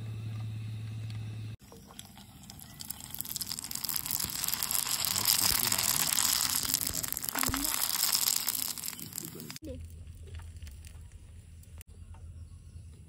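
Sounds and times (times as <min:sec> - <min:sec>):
bread frying in hot oil: 0:01.8 - 0:09.6.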